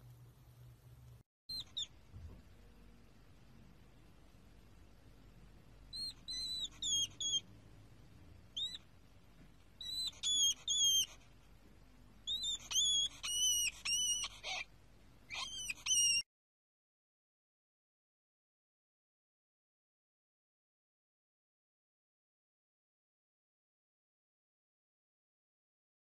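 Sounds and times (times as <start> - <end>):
hedgehog peeping squeaks: 1.5 - 2.0, 5.9 - 7.5, 8.5 - 8.9, 9.8 - 11.3, 12.2 - 14.7, 15.3 - 16.2.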